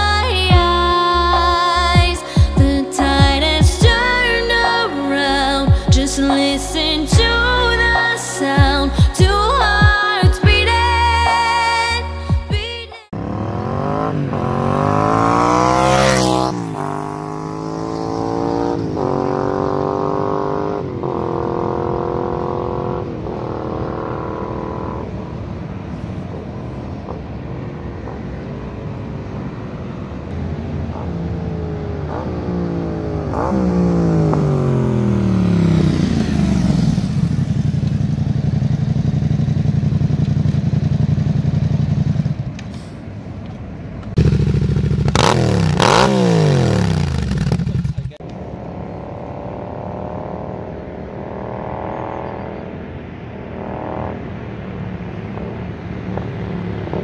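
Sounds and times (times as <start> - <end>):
motorcycle idling: 0.0 - 10.8, 30.8 - 50.5
motorcycle accelerating and upshifting: 0.0 - 57.0.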